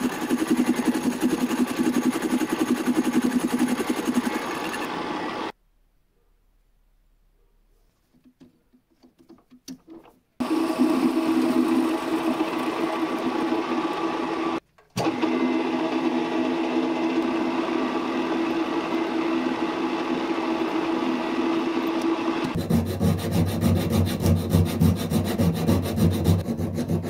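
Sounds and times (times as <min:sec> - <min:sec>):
metal lathe humming: 0:00.0 - 0:05.5, 0:10.4 - 0:23.2.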